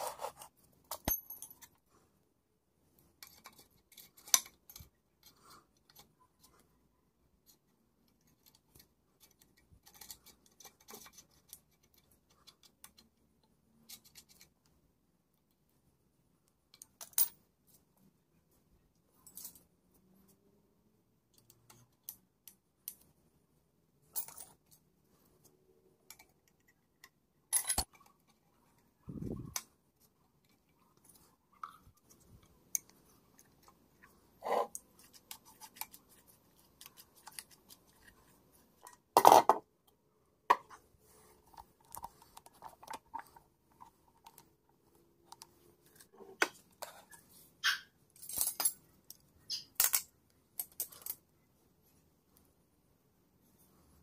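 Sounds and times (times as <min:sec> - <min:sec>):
metallic clinks of small steel parts: 0:27.5 - 0:28.0.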